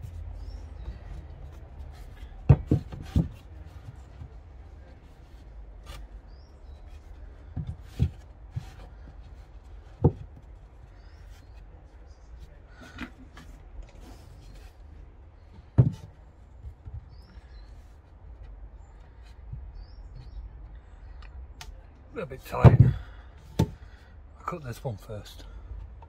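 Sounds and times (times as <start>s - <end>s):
dull wooden thumps: 0.0s - 11.6s, 15.4s - 20.8s, 22.3s - 24.0s.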